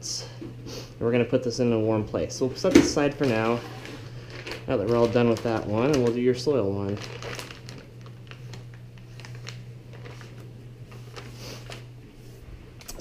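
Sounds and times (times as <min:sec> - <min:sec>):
steady low hum: 0:00.0 - 0:13.0
plastic bag crinkling: 0:03.0 - 0:11.9.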